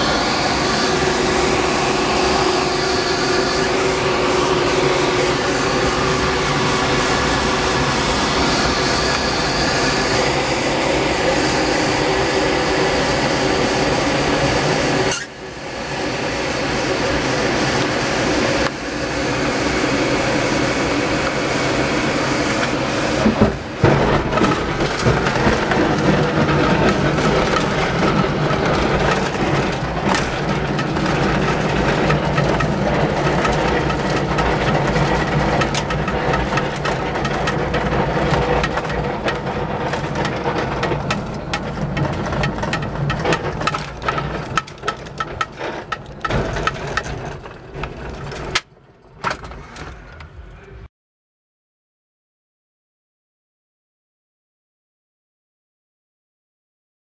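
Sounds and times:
wheel rumbling over turf: 15.9s - 50.4s
knocks and bumps: 23.2s - 50.4s.

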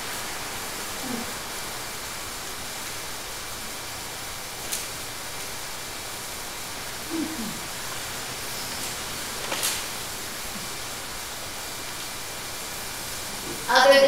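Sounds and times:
background hiss: 0.0s - 14.0s
short falling vocal sound: 7.1s - 7.7s.

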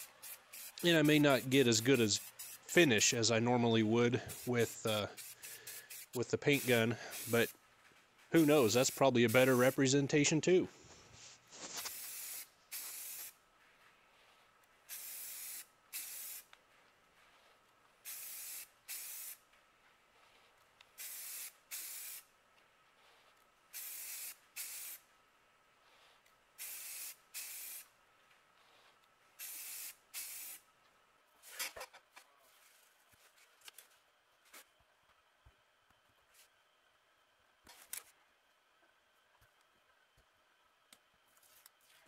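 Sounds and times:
spray paint hissing bursts: 0.0s - 3.3s, 4.2s - 7.6s, 8.3s - 9.9s, 11.2s - 13.4s, 14.8s - 16.5s, 18.0s - 19.4s, 21.0s - 22.3s, 23.7s - 25.0s, 25.9s - 27.9s, 28.7s - 30.7s.

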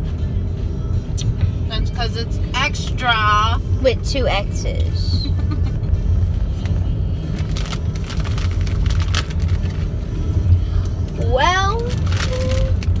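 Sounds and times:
road and engine rumble in car: 0.0s - 13.0s.

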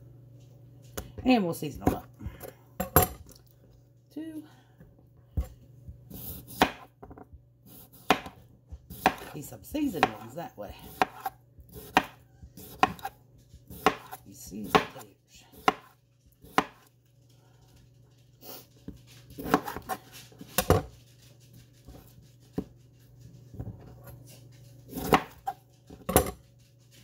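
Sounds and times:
knife slicing potatoes: 5.4s - 7.0s, 7.6s - 16.9s, 18.4s - 21.0s, 23.5s - 26.4s.

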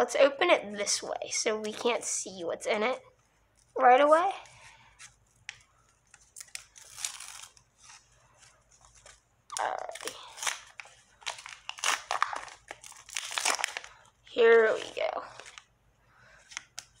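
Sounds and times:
plastic wrapper crinkling and tearing: 5.1s - 15.7s, 16.5s - 17.0s.

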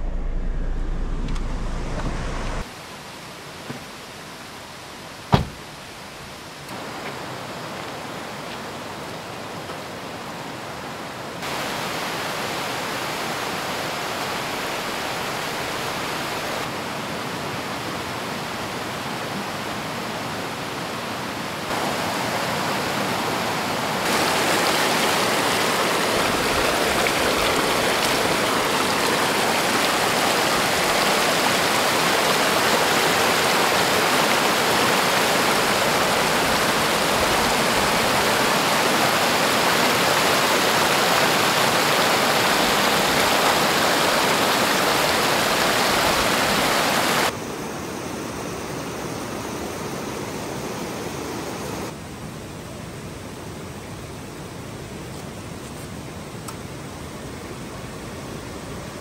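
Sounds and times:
river water rushing over stones: 2.5s - 52.3s.

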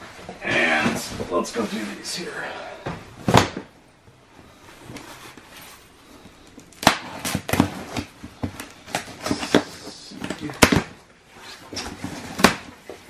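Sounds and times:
tape ripping off cardboard: 6.7s - 9.7s.

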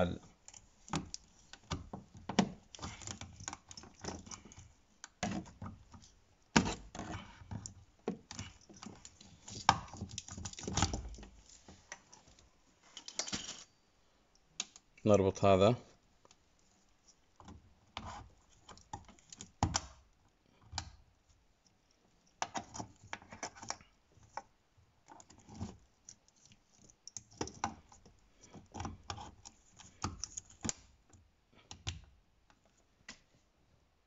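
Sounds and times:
wires rustling: 0.0s - 13.8s.

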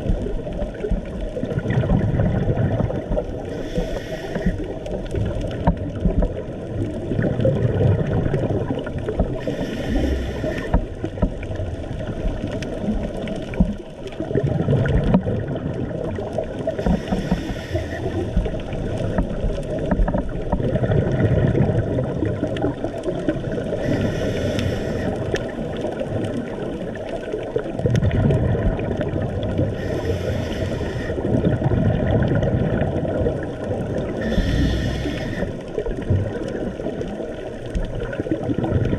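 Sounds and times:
low underwater rumble: 0.0s - 38.9s
regulator exhaled bubbles: 1.4s - 4.7s.

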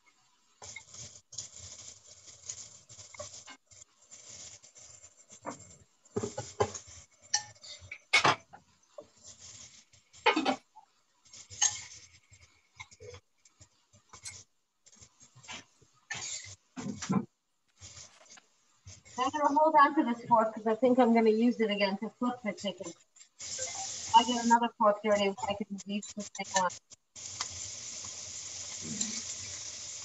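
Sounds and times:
fork scraping a bowl: 11.4s - 12.2s, 16.1s - 16.6s.

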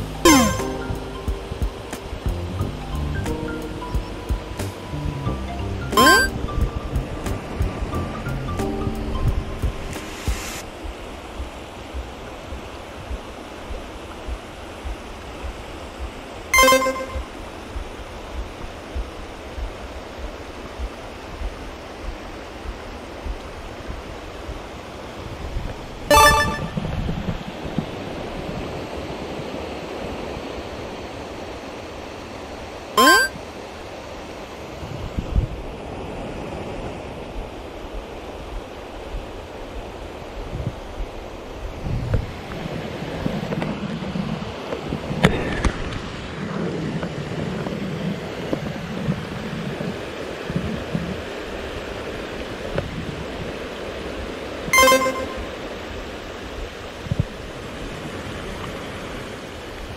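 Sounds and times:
short pitched squeal: 0.3s - 0.7s
short pitched sound: 0.3s - 1.0s, 6.0s - 6.4s, 16.6s - 17.3s, 26.1s - 26.9s, 33.0s - 33.4s, 54.8s - 55.6s.

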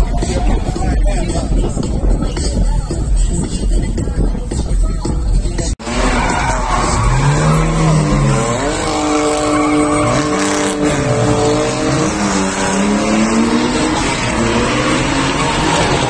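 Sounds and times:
car engines at full throttle: 5.8s - 16.0s
tyres squealing on tarmac: 5.8s - 16.0s.

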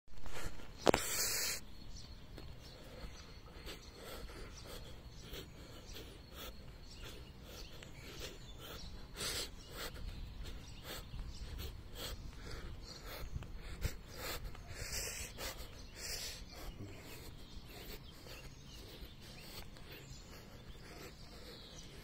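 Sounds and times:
footsteps walking: 2.0s - 3.7s.

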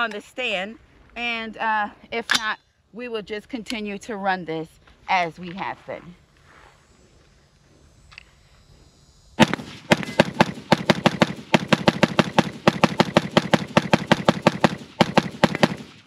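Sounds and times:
rifle shots rapid fire: 9.4s - 16.0s.

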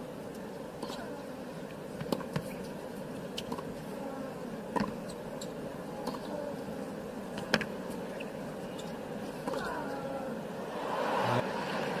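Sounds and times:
stadium crowd murmur: 9.6s - 12.0s.

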